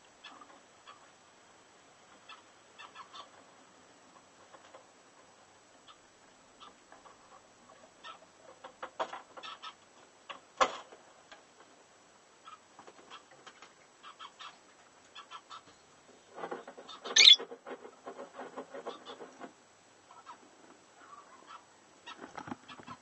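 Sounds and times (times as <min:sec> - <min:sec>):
bird scratching in bedding: 0:16.2 - 0:19.6.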